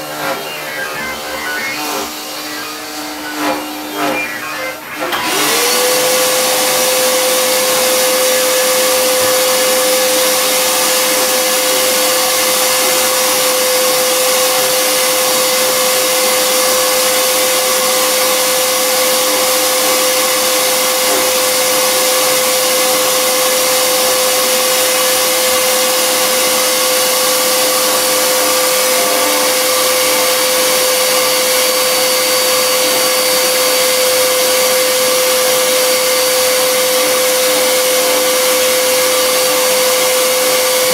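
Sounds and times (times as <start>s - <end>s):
router spindle cutting wood: 0.0s - 14.5s
shop vacuum running: 0.0s - 40.9s.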